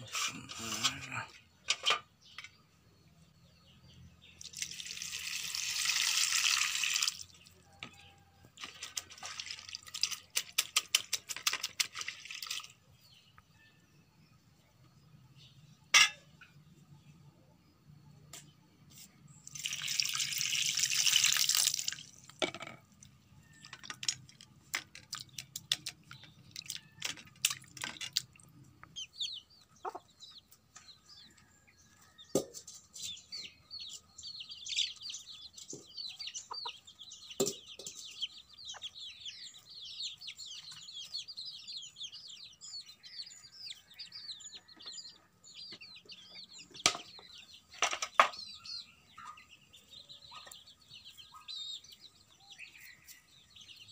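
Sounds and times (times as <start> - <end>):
birds chirping: 0.0 - 5.6, 6.8 - 53.9
water splashing onto steel plate: 19.6 - 22.7.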